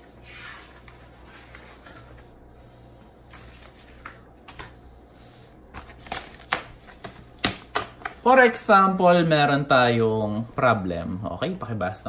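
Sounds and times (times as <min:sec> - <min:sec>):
paper rustling: 0:03.3 - 0:08.2.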